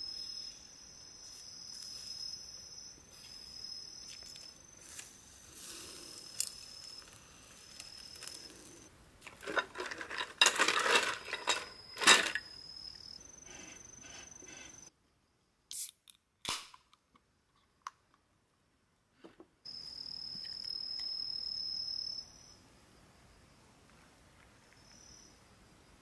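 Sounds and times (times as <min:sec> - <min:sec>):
insect trilling: 0:00.0 - 0:08.9
ice rattling and clinking: 0:09.2 - 0:12.5.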